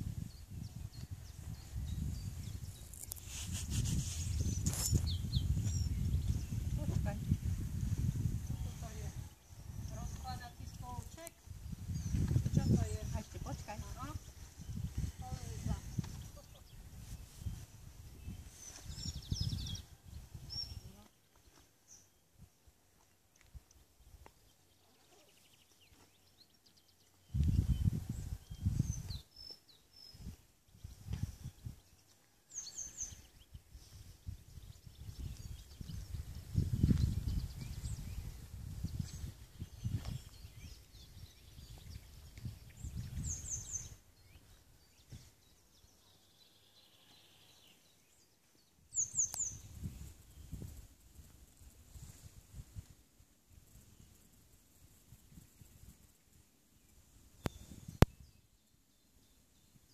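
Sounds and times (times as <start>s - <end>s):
wind buffeting microphone: 0.0s - 21.0s, 27.2s - 45.6s, 48.9s - 54.3s, 57.2s - 58.4s
songbirds chirping and whistling: 0.0s - 23.2s, 24.0s - 50.8s, 56.6s - 59.9s.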